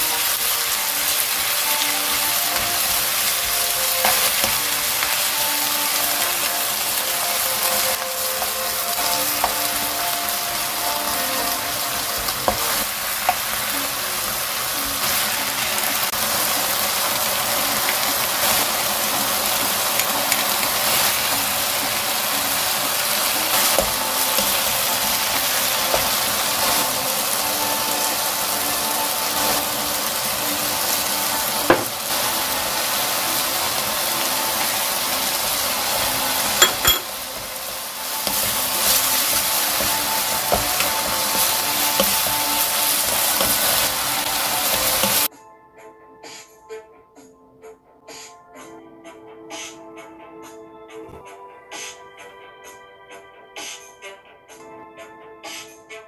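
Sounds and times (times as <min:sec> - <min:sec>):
vegetables sizzling in a wok: 0:00.0 - 0:45.3
spatula knocking against pan: 0:31.7 - 0:32.0, 0:36.6 - 0:37.2.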